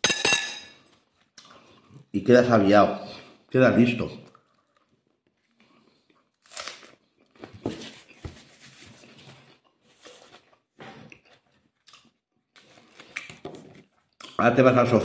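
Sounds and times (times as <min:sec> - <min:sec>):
chewing and crunching bread: 0:04.2 - 0:07.6, 0:09.4 - 0:14.4.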